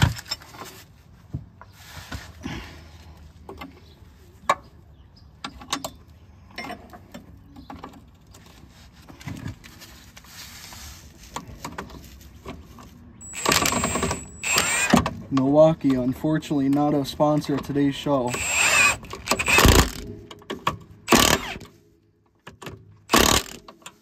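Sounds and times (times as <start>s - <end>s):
impact wrench whining: 13.2s - 15.1s, 18.3s - 20.2s, 21.1s - 21.7s, 23.1s - 23.7s.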